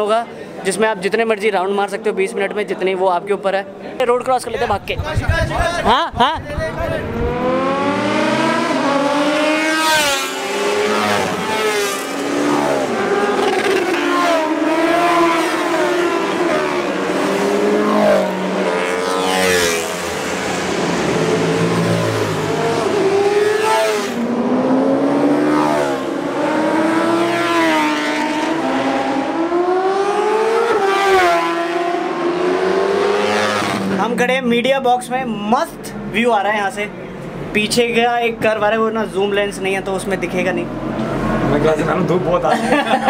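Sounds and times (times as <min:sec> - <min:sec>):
racing motorcycles accelerating: 0:04.7 - 0:34.3.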